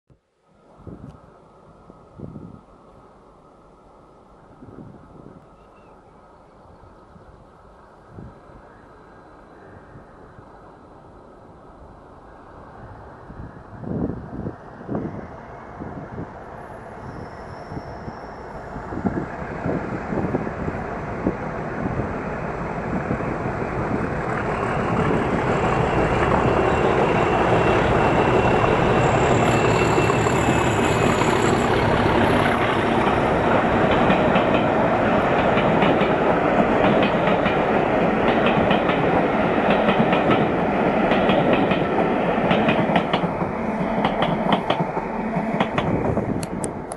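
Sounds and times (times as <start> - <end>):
diesel locomotive engines: 0.8 - 46.9
faint high whine: 14.9 - 19.6
wheels clicking over rail joints: 32.3 - 46.9.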